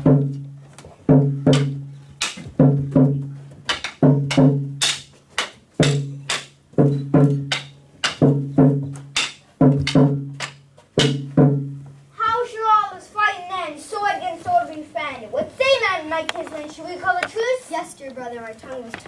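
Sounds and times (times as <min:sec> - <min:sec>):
drum beating: 0:00.0 - 0:12.5
sharp clacks: 0:01.5 - 0:02.6, 0:03.7 - 0:11.3.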